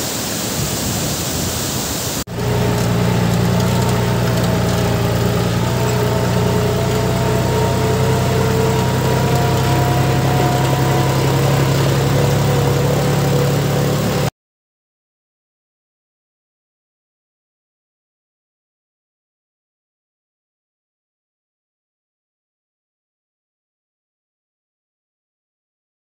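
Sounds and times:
rushing stream water: 0:00.0 - 0:14.3
motor-like drone: 0:02.3 - 0:14.3.

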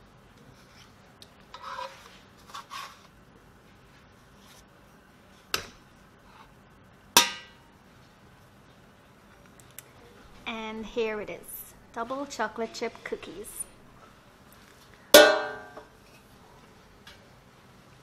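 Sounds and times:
utensils scraping metal pan: 0:01.5 - 0:03.0
sharp metallic clanks: 0:15.2 - 0:15.8.

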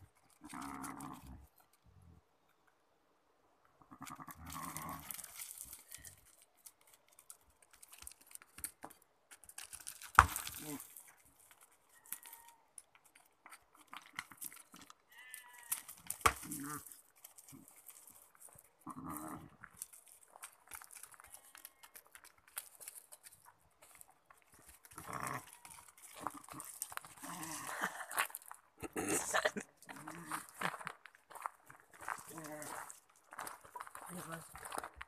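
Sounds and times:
hooves on stony track: 0:07.1 - 0:35.0.

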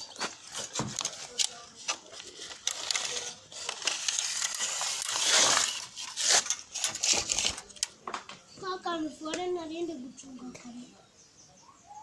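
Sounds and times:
rubbing and scraping on wood: 0:00.0 - 0:08.4.

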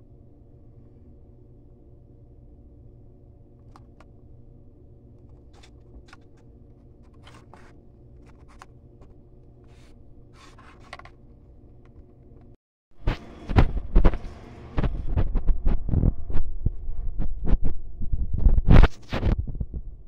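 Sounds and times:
steady low hum: 0:00.0 - 0:20.0
scrapes rubs and clicks from handling: 0:05.2 - 0:13.3.

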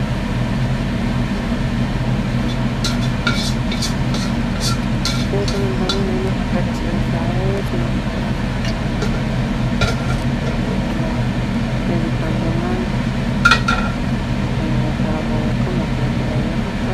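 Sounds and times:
steady low hum: 0:00.0 - 0:16.9
metal spatula scraping a wok: 0:02.4 - 0:06.6, 0:08.6 - 0:10.7.

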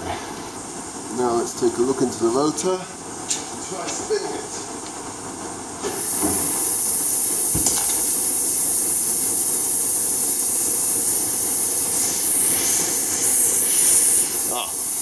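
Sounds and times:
compressed air hissing: 0:05.8 - 0:15.0.

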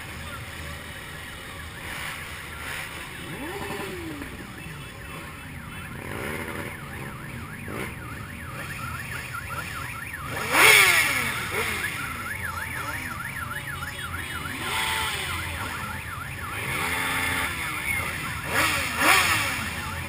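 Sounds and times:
motorcycles rumbling: 0:00.0 - 0:20.0
siren yelping: 0:00.0 - 0:20.0
engine revving: 0:01.8 - 0:13.4, 0:14.2 - 0:20.0.

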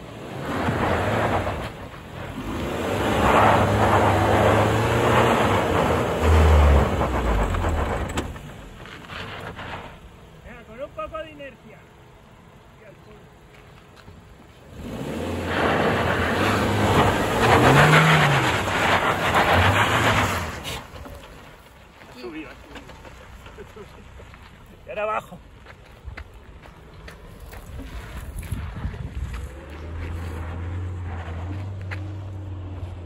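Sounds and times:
car engine pulling: 0:00.0 - 0:33.0
wind noise on microphone: 0:28.2 - 0:29.5.

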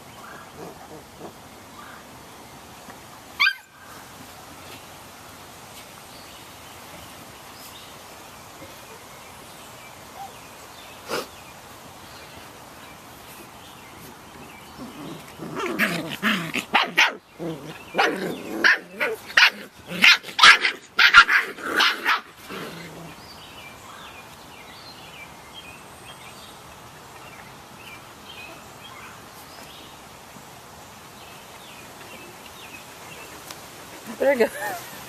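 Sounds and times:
puppies barking and yipping: 0:03.4 - 0:03.8, 0:14.8 - 0:22.5.

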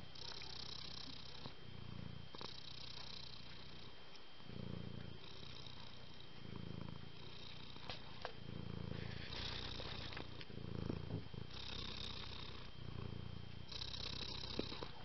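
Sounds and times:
cat purring: 0:00.0 - 0:15.0.

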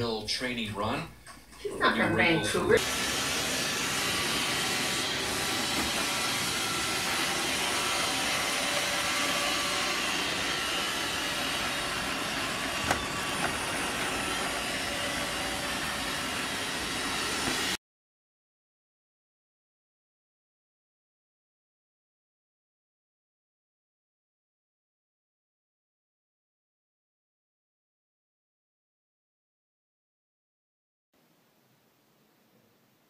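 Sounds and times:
robot vacuum cleaner running: 0:02.4 - 0:17.8.

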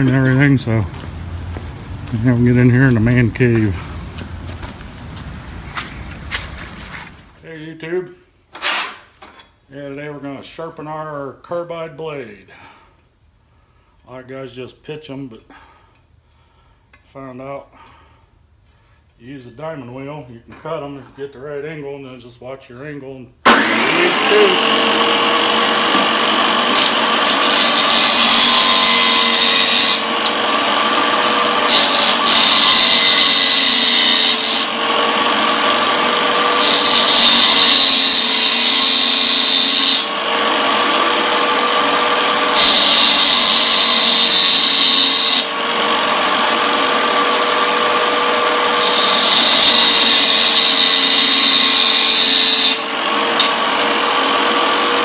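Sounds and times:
saw blade teeth grinding: 0:23.5 - 0:45.5, 0:46.2 - 0:55.0
tile cutter motor whine: 0:23.5 - 0:55.0.

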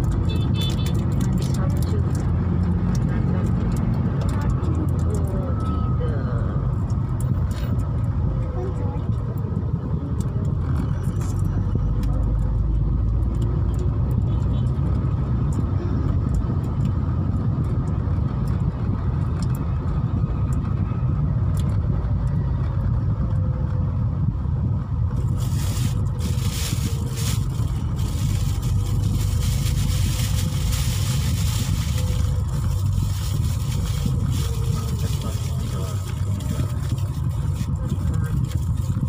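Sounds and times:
car engine and road noise: 0:00.0 - 0:39.0.

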